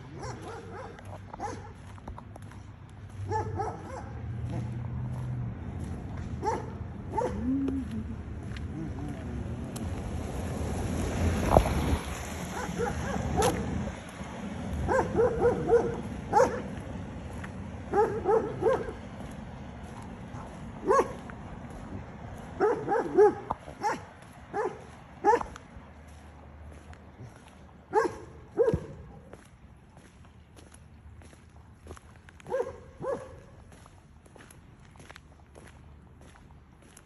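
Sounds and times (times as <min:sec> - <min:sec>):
low rumble of traffic: 0:00.0 - 0:37.0
dog barking: 0:00.1 - 0:01.8, 0:03.3 - 0:04.7, 0:06.4 - 0:07.6, 0:12.5 - 0:13.8, 0:14.8 - 0:16.8, 0:17.9 - 0:19.0, 0:20.3 - 0:21.2, 0:22.6 - 0:25.6, 0:27.9 - 0:29.2, 0:32.5 - 0:33.5.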